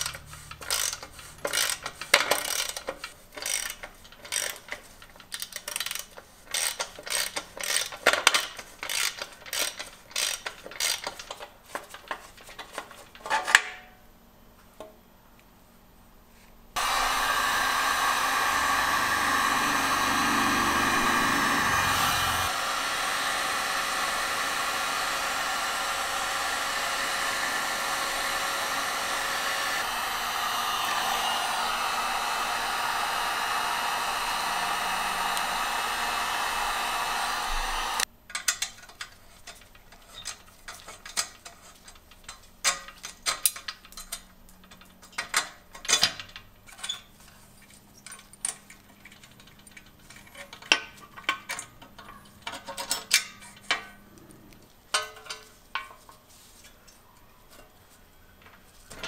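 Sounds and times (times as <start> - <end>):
small metal hardware clicking: 0.0 - 11.5, 38.3 - 47.1
heat gun blowing: 16.8 - 38.1.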